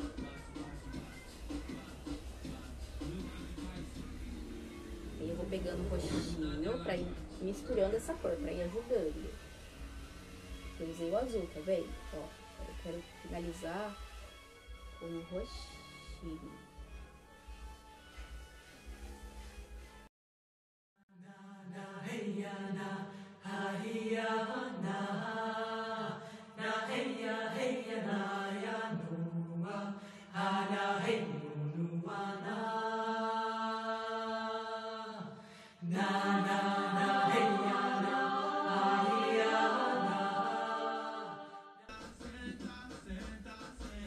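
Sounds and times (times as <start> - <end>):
music with voice-like held notes: 0.0 - 20.1, 35.5 - 44.0.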